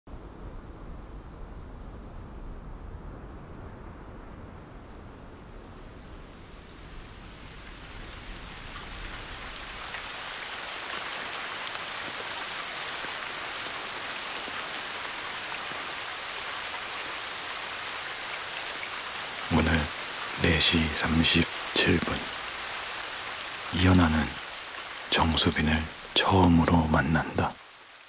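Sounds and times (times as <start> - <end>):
low rumble: 0.1 - 6.2
steady rain falling: 3.0 - 28.0.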